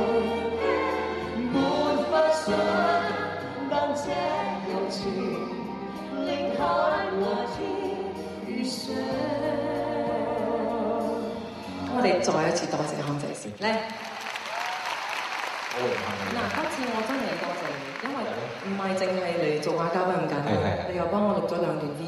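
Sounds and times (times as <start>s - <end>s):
orchestra playing: 0.0s - 7.4s
man and woman singing duet: 0.0s - 12.4s.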